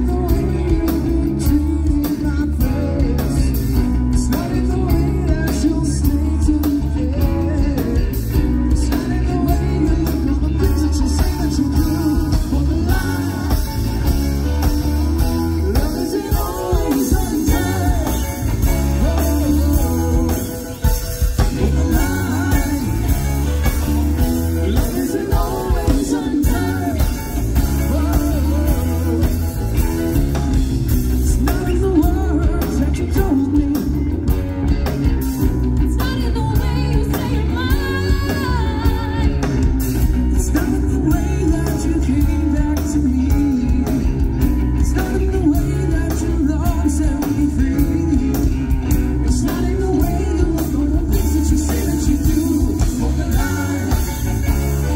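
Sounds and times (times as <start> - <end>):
person singing: 0.0 - 14.6, 15.2 - 30.0, 31.1 - 34.4, 35.8 - 54.9
live rock band playing: 0.0 - 54.9.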